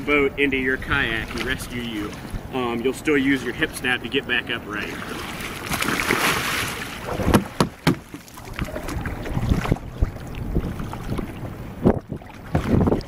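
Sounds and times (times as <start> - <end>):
kayak capsizing splash: 0.0 - 2.6, 4.6 - 13.0
water slopping around boats: 0.0 - 13.0
knocks on boat hull: 7.2 - 8.2.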